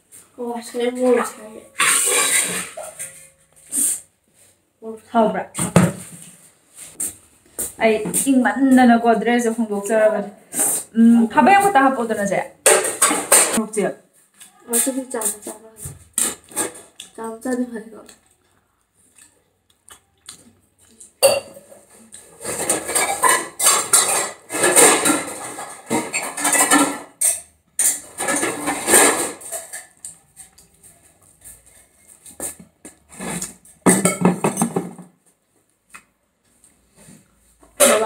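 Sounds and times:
food scraping against plate: 1.1 - 4.1, 10.4 - 11.7, 21.6 - 33.8.

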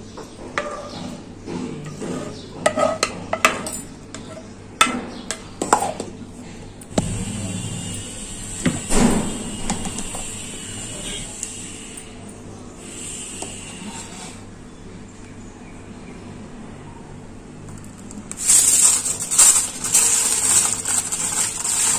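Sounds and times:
electric mixer grinder running: 18.4 - 21.9.

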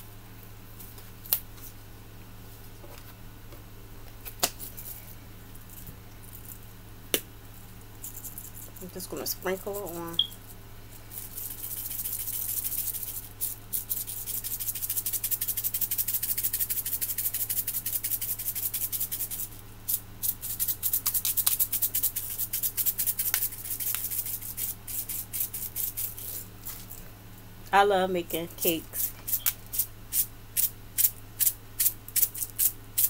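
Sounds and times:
sprinkles rattling in plastic shaker: 4.6 - 6.6, 7.5 - 27.0.

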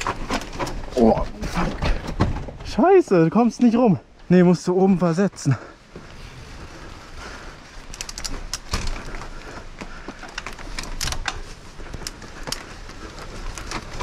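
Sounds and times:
bike rattling: 0.0 - 2.8, 5.8 - 14.0
bike tyres rolling on wooden planks: 0.0 - 3.6, 5.5 - 14.0.

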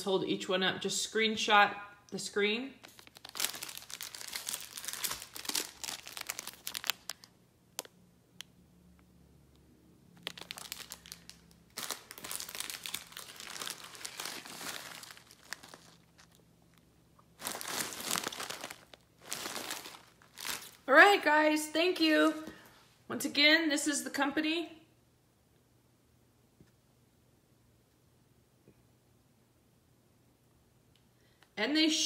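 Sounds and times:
plastic bags crinkling: 2.8 - 7.9, 10.2 - 20.9.

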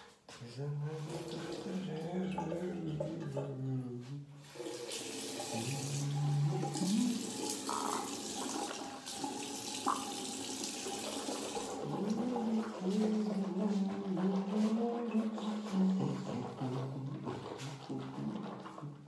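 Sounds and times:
tap water running into sink: 0.8 - 3.6, 4.4 - 19.0.

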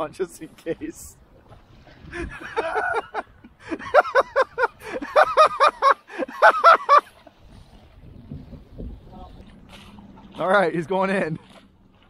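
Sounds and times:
person laughing: 2.1 - 7.1.

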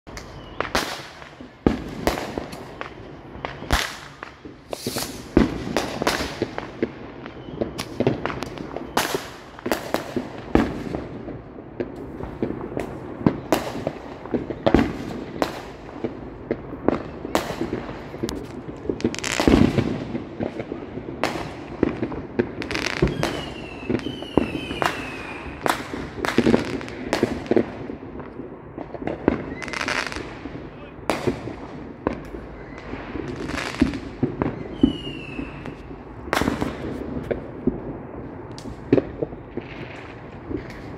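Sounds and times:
fireworks bangs and crackles: 0.0 - 40.9
falling firework whistles: 0.1 - 10.8, 22.7 - 26.8, 29.3 - 30.2, 32.2 - 36.9.

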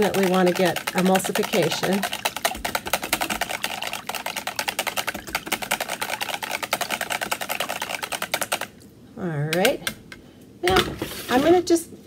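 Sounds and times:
whisk rattling in plastic pitcher: 0.0 - 8.8.

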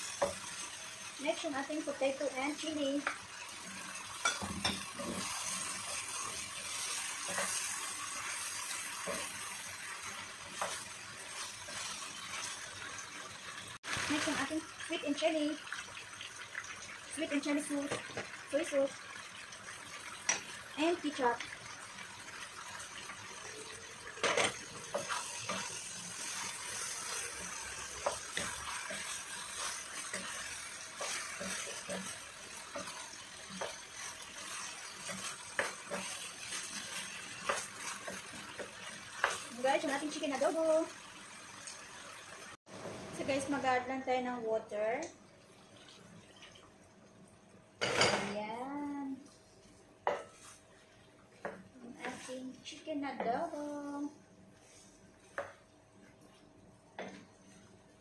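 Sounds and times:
chicken sizzling in a pan: 0.0 - 46.9, 47.6 - 58.0
wooden spoon scraping pan: 24.2 - 40.0, 51.9 - 54.0.

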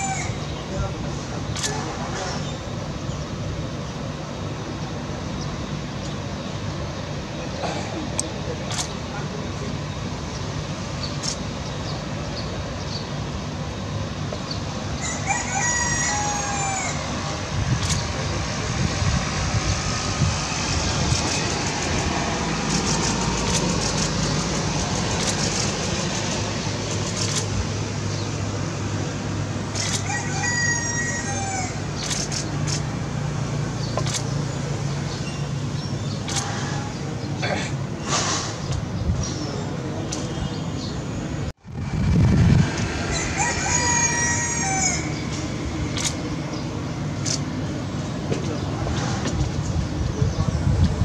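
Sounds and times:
rooster crowing: 15.0 - 17.1, 29.8 - 31.8, 43.1 - 45.2
jet engines humming: 16.6 - 30.2, 39.7 - 51.0.

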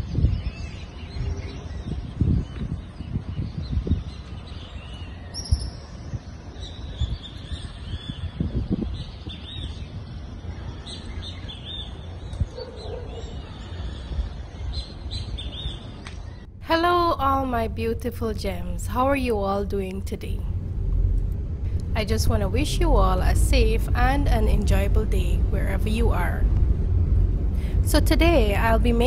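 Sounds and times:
birds chirping: 0.0 - 20.4
low rumbles: 0.0 - 29.0.

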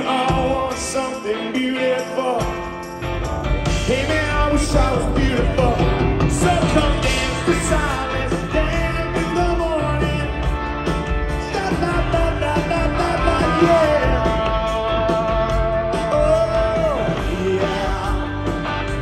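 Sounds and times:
lead vocal singing: 0.0 - 2.9, 3.7 - 10.7, 11.3 - 19.0
live rock band playing: 0.0 - 19.0.

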